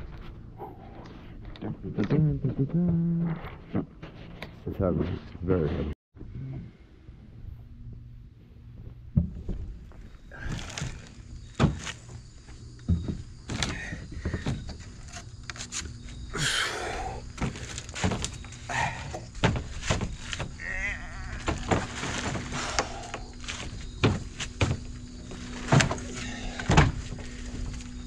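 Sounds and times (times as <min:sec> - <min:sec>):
heavy debris knocks and thuds: 0:21.2 - 0:27.2.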